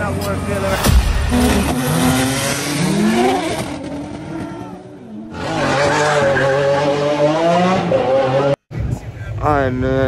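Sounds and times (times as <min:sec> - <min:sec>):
tire noise: 0:00.0 - 0:10.0
sports car engine revving: 0:00.7 - 0:04.5.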